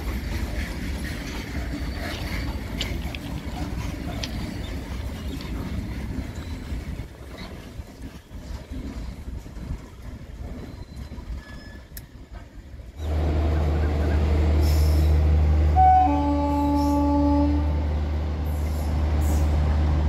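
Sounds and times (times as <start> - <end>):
freight train rumbling past: 0.0 - 20.0
wheel clicks and squeaks: 0.1 - 13.1.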